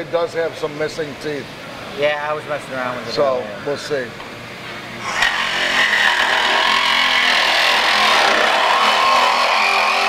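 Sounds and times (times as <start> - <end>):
reciprocating saw cutting sheet metal: 5.0 - 10.0.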